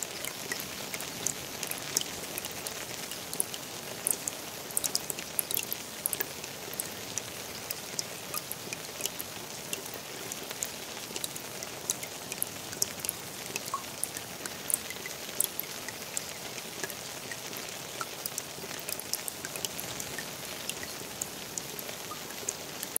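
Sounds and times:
rain hissing on pond: 0:00.0 - 0:23.0.

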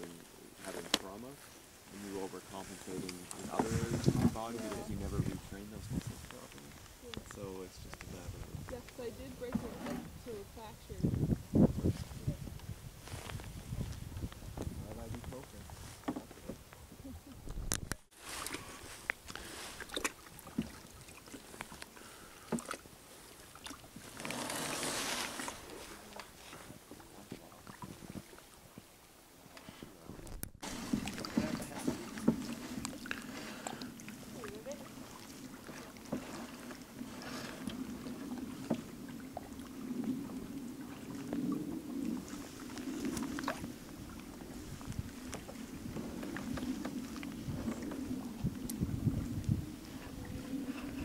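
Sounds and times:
water rush: 0:00.0 - 0:12.3, 0:18.1 - 0:28.7, 0:30.6 - 0:51.0
paddle blades splashing: 0:00.0 - 0:51.0
water lapping against hull: 0:00.0 - 0:51.0
small water drips: 0:18.4 - 0:24.0, 0:31.0 - 0:36.1.

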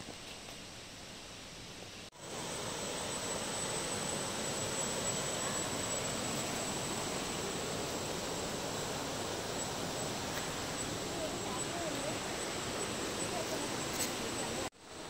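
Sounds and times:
stream rushing over boulders: 0:02.1 - 0:15.0.

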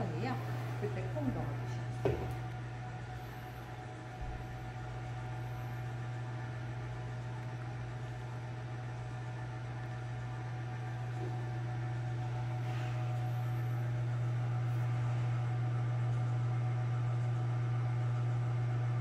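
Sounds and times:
coffee roaster motor hum: 0:00.0 - 0:19.0.

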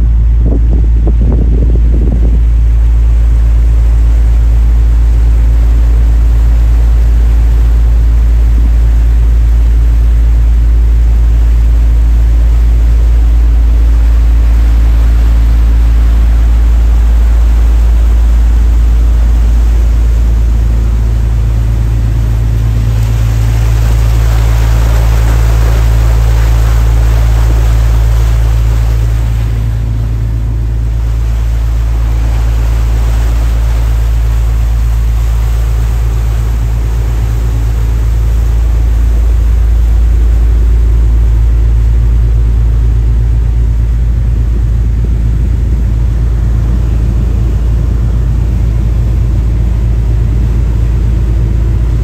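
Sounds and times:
boat engine droning: 0:00.0 - 0:52.0
rushing noise: 0:14.1 - 0:42.1.

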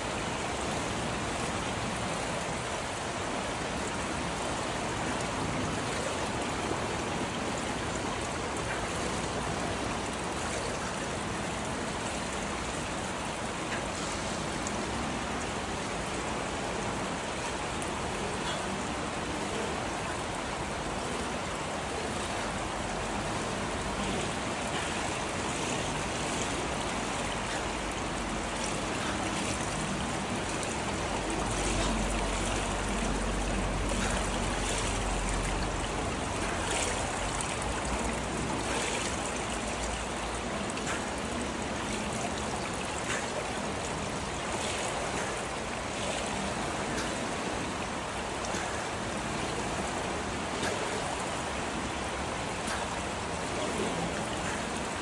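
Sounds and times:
water splashing and churning: 0:00.0 - 0:55.0.

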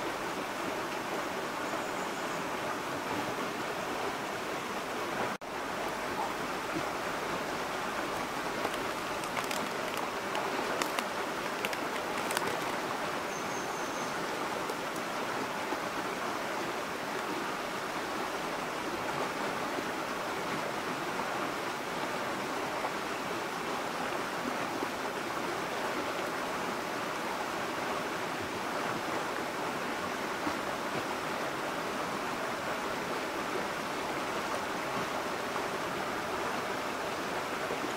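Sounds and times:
stream flowing over pebbles: 0:00.0 - 0:37.9
faint clicks: 0:08.2 - 0:12.9.

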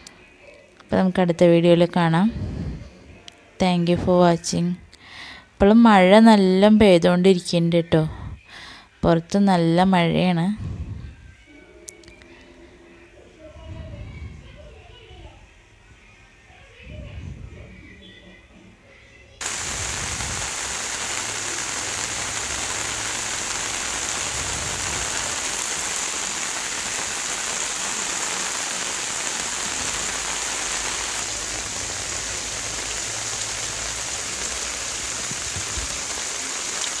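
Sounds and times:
heavy rain falling: 0:19.4 - 0:37.0.

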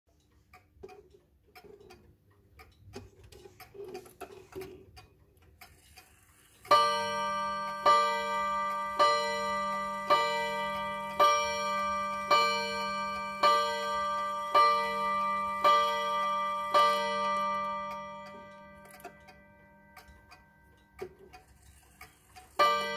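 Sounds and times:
clock movement clicks and ticks: 0:00.1 - 0:22.9
wall clock striking: 0:06.7 - 0:21.6, 0:22.2 - 0:22.9.

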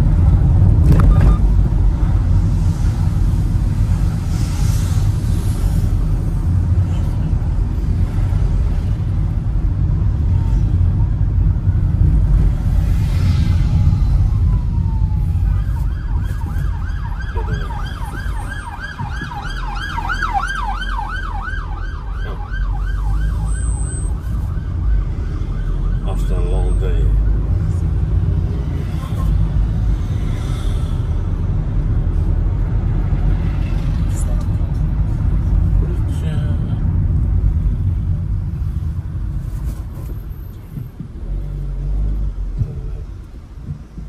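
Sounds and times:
vehicle rumble: 0:00.0 - 0:44.0
siren yelping: 0:14.2 - 0:26.8.

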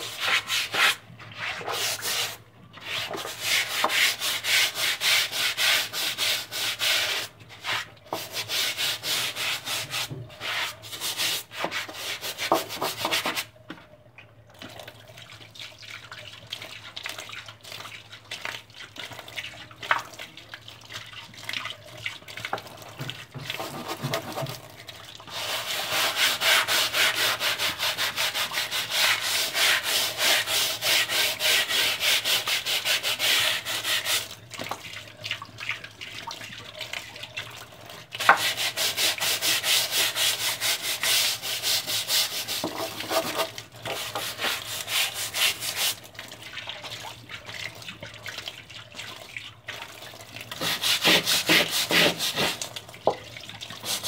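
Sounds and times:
hand scrubbing laundry: 0:00.0 - 0:13.5, 0:22.5 - 0:24.6, 0:25.2 - 0:37.0, 0:38.1 - 0:54.0.

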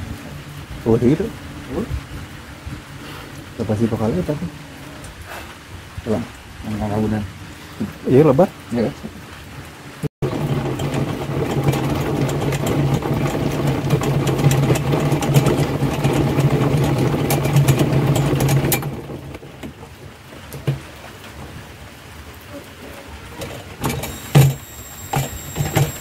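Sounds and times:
honey extractor whirring and rattling: 0:10.2 - 0:19.8, 0:23.8 - 0:26.0.

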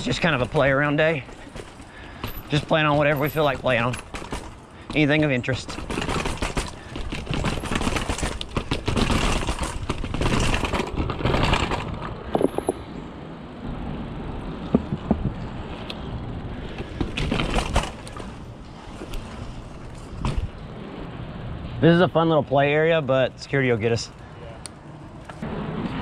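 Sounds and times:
bike rattle: 0:00.0 - 0:13.6, 0:14.2 - 0:21.4
tyres rolling on pavement: 0:00.0 - 0:26.0
bike tyres hitting stairs: 0:00.1 - 0:12.6, 0:14.6 - 0:15.6, 0:16.7 - 0:18.5
knocks: 0:14.7 - 0:15.4.

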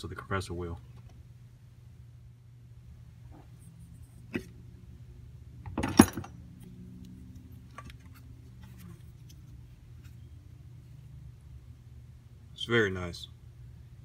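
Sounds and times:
metal clunks: 0:05.6 - 0:06.4.

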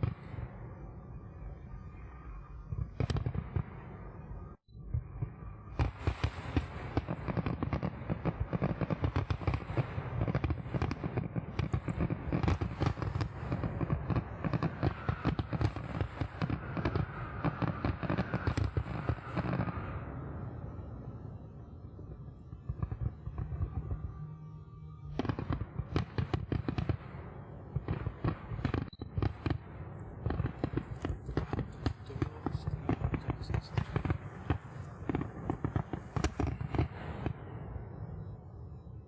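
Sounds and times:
fireworks crackling and banging: 0:02.8 - 0:03.8, 0:05.1 - 0:20.7, 0:25.0 - 0:37.7.

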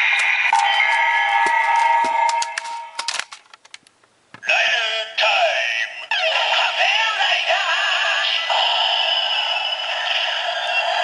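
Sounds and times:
processed voice call: 0:04.4 - 0:08.7.

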